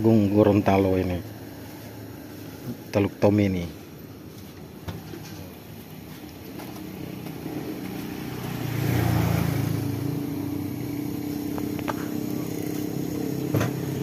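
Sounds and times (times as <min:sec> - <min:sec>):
vehicle engine running: 0:03.8 - 0:14.0.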